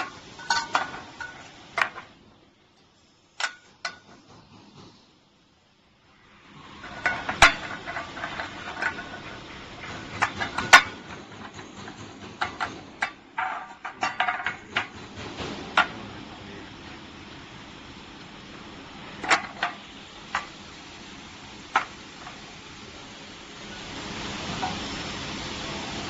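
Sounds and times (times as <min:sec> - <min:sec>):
steady background noise: 0:00.0 - 0:26.0
metal tin cans clinking: 0:00.4 - 0:02.0.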